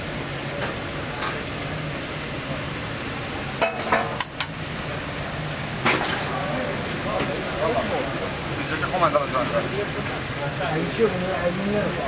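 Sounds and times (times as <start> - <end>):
food sizzling: 0.0 - 12.0.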